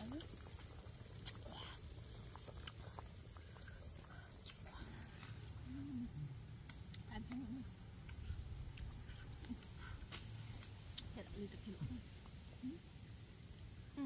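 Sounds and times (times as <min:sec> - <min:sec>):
insects buzzing: 0:00.0 - 0:14.0
faint higher tone: 0:04.6 - 0:09.6.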